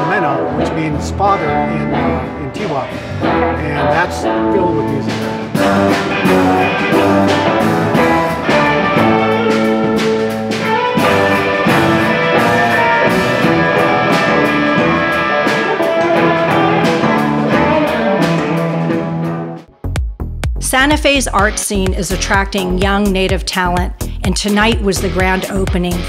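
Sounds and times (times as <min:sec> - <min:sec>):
electric guitar: 0:00.0 - 0:19.7
keyboard: 0:00.0 - 0:20.1.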